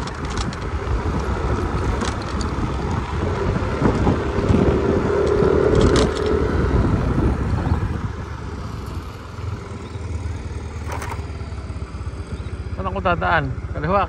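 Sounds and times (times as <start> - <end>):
scooter engine running: 0.0 - 14.0
brief clatter: 10.8 - 11.2.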